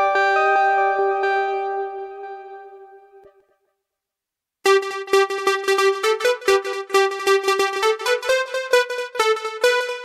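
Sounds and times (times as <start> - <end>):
bright synthesizer notes: 4.6 - 10.0.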